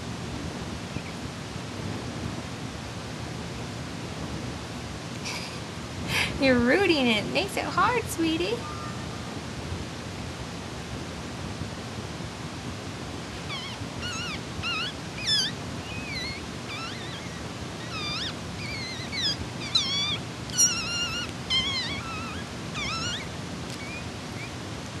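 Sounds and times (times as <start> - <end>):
puppy crying in high squeaks: 13.4 - 24.6.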